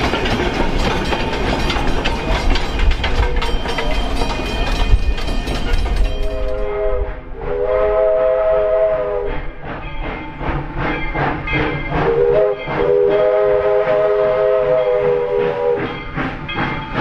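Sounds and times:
wheels clicking over rail joints: 0.0 - 6.7
rhythmic locomotive beat: 0.0 - 17.0
steam locomotive chime whistle: 1.0 - 17.0.

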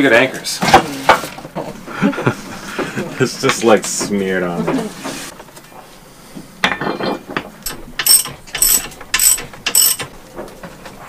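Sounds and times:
sharp metal rasps: 7.6 - 10.1.

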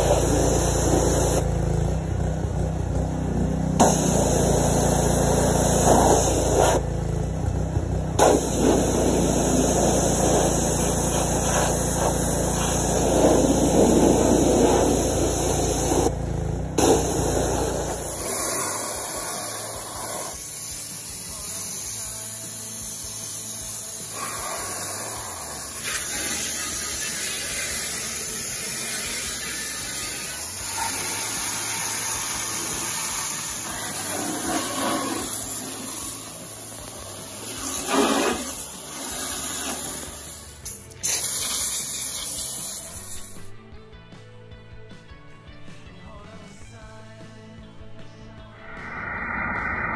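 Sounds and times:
water jet hissing: 0.0 - 1.4, 3.8 - 6.8, 8.2 - 16.1, 16.8 - 43.4
pressure washer engine running: 0.0 - 43.5.

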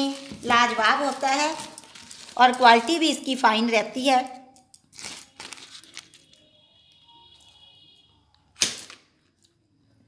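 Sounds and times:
butter wrapper crackle: 0.0 - 2.9, 4.9 - 6.2
faint handling sounds: 0.0 - 3.0, 4.7 - 6.4.

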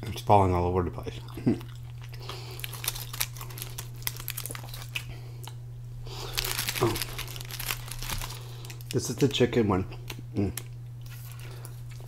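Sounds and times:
steady low hum: 0.0 - 12.0
aluminium foil crinkling: 2.0 - 5.1, 6.1 - 9.4.

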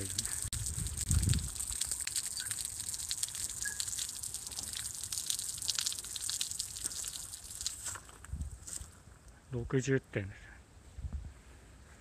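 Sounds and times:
fountain water splashing in metal basin: 0.0 - 8.1.

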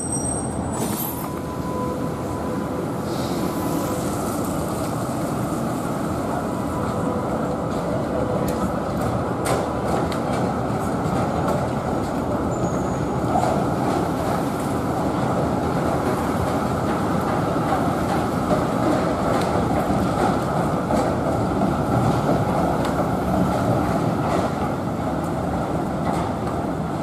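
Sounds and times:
road traffic: 0.0 - 20.1
trams rumbling on wet track: 0.0 - 27.0.

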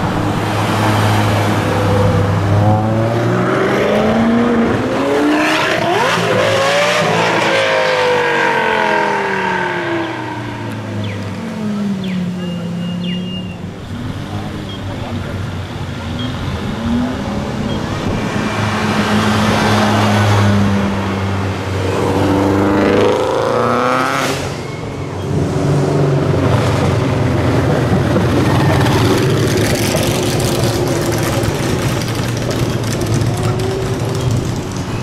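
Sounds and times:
car engine accelerating: 0.3 - 35.0.

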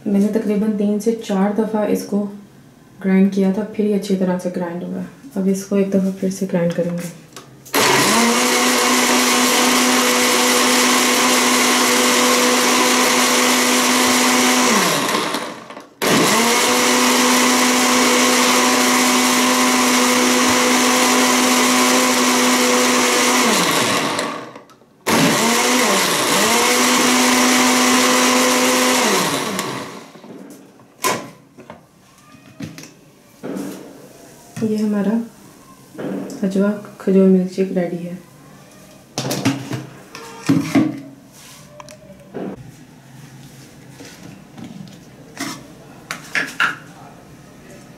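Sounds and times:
electric blender whining: 7.7 - 30.3.

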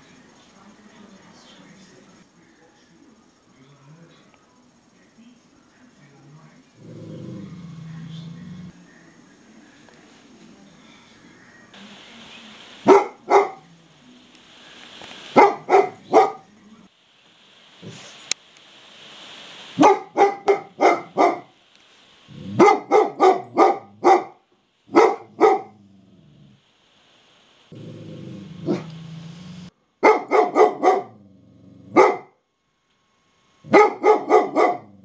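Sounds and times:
dog growling: 6.7 - 8.8, 22.3 - 24.0, 25.1 - 26.6, 27.7 - 29.7, 30.7 - 32.2, 33.7 - 35.0
large dog barking: 12.8 - 13.7, 15.3 - 16.5, 19.8 - 21.6, 22.3 - 25.8, 27.8 - 29.1, 30.0 - 31.2, 31.9 - 32.4, 33.6 - 35.0.

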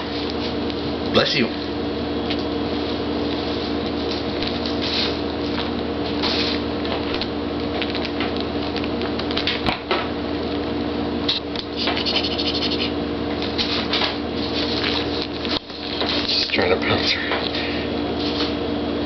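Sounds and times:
background hum: 0.0 - 19.0
claws scratching on denim: 11.7 - 13.0.

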